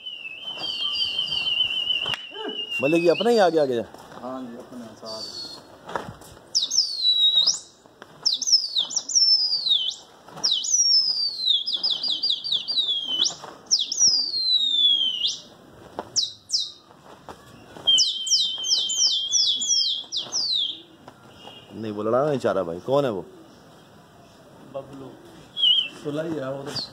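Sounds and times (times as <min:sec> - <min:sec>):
high sliding whistles: 0:00.0 - 0:03.4
trilling whistle: 0:00.0 - 0:03.4, 0:08.6 - 0:15.4.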